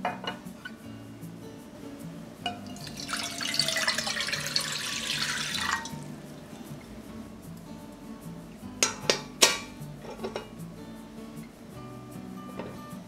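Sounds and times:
water pouring into a pot: 0:02.6 - 0:06.1.

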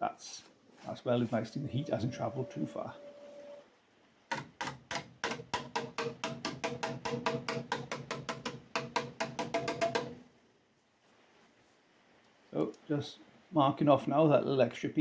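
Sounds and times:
hammer tapping on steel: 0:04.3 - 0:10.2.

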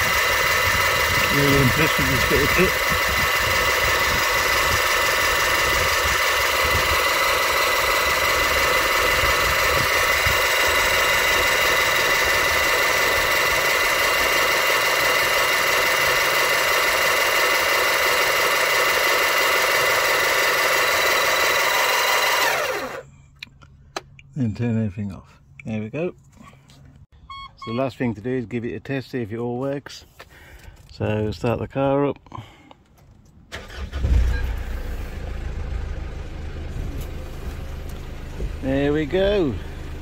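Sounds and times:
electric car jack motor whining: 0:00.0 - 0:23.0.

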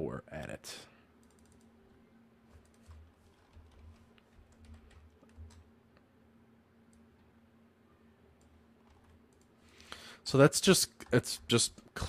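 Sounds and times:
low steady hum: 0:00.0 - 0:12.0
faint keyboard typing: 0:01.2 - 0:06.1, 0:08.3 - 0:09.8, 0:10.8 - 0:12.0.

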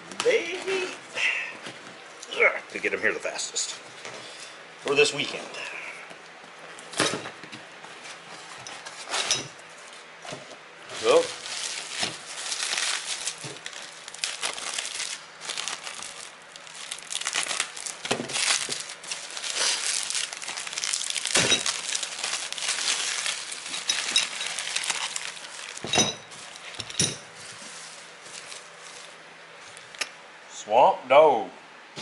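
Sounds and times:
bubble wrap crinkling: 0:10.9 - 0:30.0.

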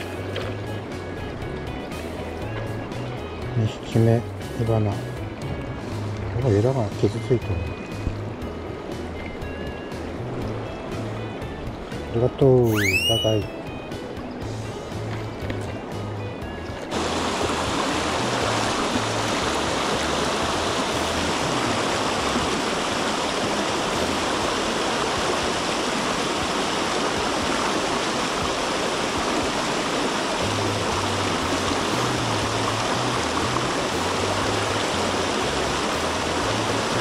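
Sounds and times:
stream rushing over rocks: 0:00.0 - 0:01.0, 0:16.8 - 0:37.0.

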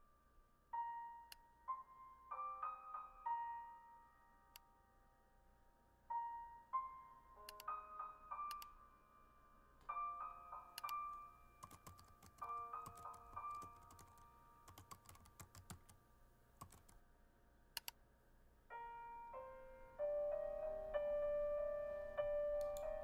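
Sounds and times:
soft background music: 0:00.0 - 0:18.0, 0:18.6 - 0:23.0
laptop keyboard typing: 0:10.7 - 0:16.0, 0:16.6 - 0:17.0.

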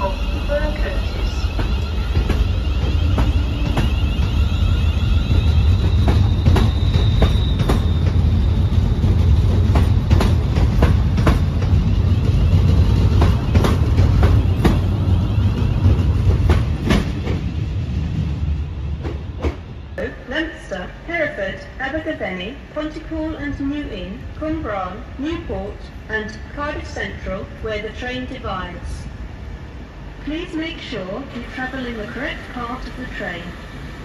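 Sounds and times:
train wheels rumbling on rails: 0:00.0 - 0:20.4.

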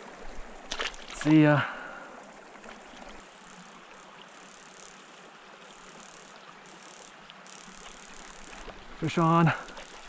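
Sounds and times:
creek trickling: 0:00.0 - 0:10.0
faint ticks: 0:02.6 - 0:08.8.

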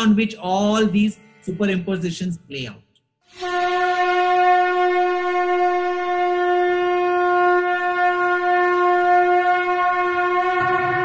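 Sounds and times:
conch shell blown: 0:03.3 - 0:11.0.

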